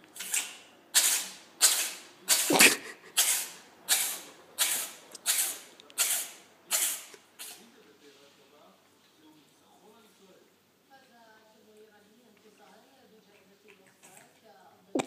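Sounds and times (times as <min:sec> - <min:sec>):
cat sneezing: 0:00.2 - 0:07.6.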